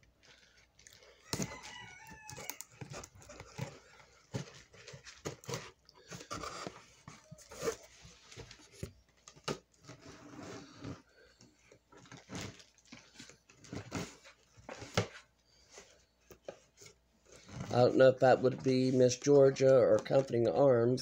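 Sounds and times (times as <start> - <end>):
cardboard box scraping and rustling: 2.7 - 8.8, 9.8 - 11.1, 12.0 - 15.9.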